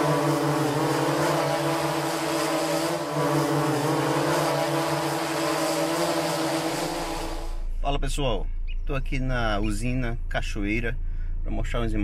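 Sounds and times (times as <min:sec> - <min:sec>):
drone propellers humming: 0:00.0 - 0:07.7.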